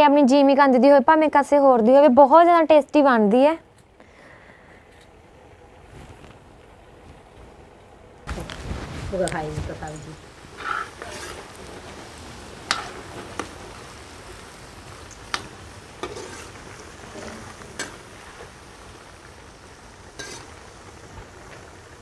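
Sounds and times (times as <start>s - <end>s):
food deep-frying in oil: 8.2s - 22.0s.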